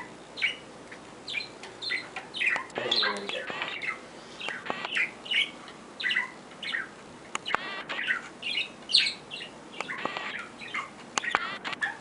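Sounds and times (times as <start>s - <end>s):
budgerigar chirping: 0.0s - 0.7s, 1.3s - 12.0s
sharp clicks: 4.4s - 5.0s, 7.3s - 8.1s, 9.8s - 10.4s, 11.2s - 11.8s.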